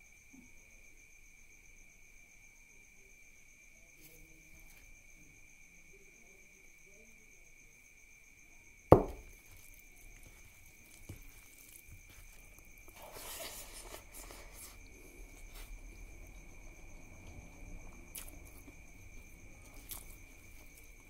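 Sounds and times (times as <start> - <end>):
crickets trilling: 0.0 - 21.0
wet squishing of food: 9.5 - 21.0.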